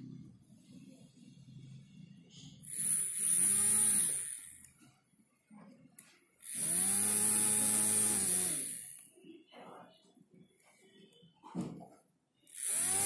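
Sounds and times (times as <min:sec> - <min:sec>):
small electric motor whining: 0:02.6 - 0:04.8, 0:06.4 - 0:09.1, 0:12.5 - 0:13.0.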